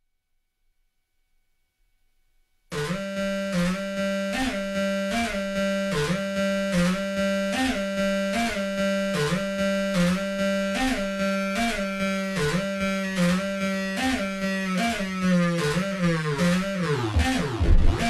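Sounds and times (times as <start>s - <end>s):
buzzy synthesizer drone: 2.7s - 14.0s, 15.2s - 18.0s
synthesizer percussive hit: 16.6s - 18.0s.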